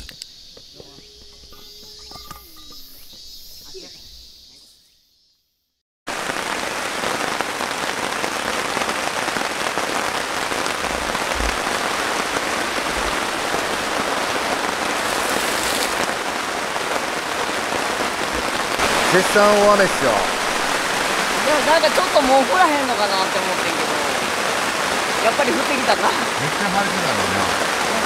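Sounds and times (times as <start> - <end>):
heavy rain on tent canvas: 6.1 - 28.0.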